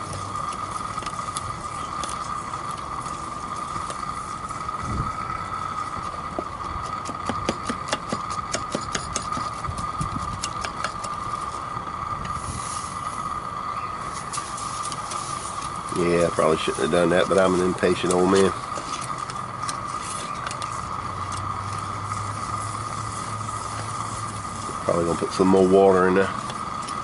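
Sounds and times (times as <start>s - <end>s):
gas burner hissing: 0.0s - 27.0s
crystals poured hiss: 12.3s - 26.5s
crystals crackling when stirred: 14.0s - 27.0s.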